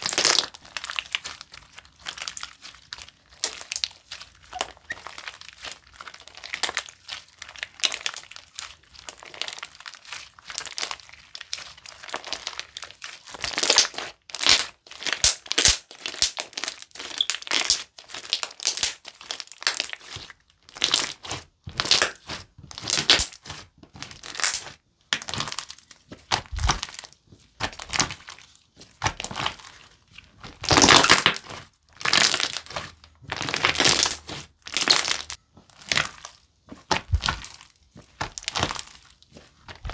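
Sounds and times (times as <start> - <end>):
slime crackling when squeezed: 0.0 - 23.6.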